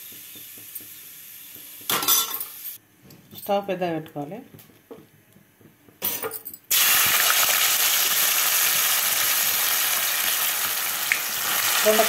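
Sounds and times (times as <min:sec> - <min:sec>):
deep frying sizzle: 0:00.0 - 0:02.7, 0:06.7 - 0:12.0.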